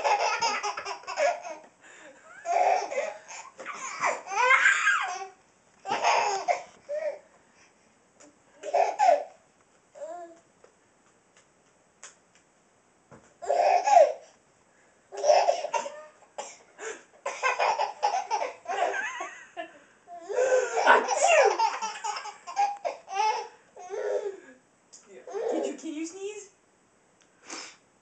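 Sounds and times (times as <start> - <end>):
baby laughing hysterically: 0.0 - 1.7, 2.3 - 7.2, 8.6 - 9.4, 13.4 - 14.2, 15.1 - 16.0, 17.3 - 19.4, 20.3 - 24.0.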